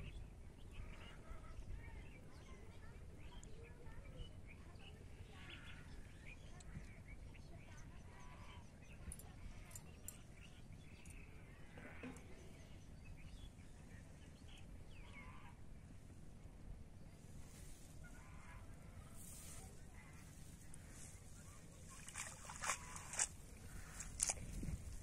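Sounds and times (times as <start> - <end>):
low wind-like rumble: 8.5 - 25.0.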